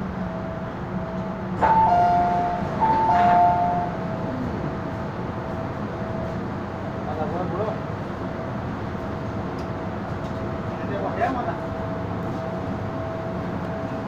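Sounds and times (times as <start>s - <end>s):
train running rumble: 0.0s - 14.0s
two-note chime: 1.6s - 4.0s.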